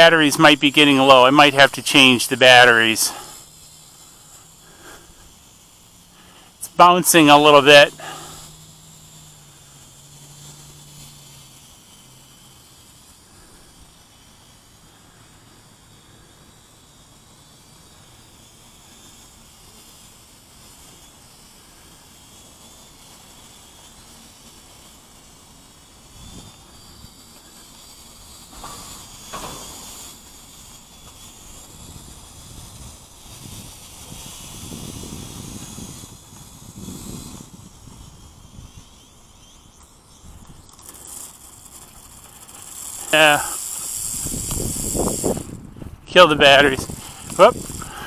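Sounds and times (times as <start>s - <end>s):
steady hiss: 0.0s - 48.0s
wind buffeting microphone: 31.6s - 39.0s, 43.9s - 48.0s.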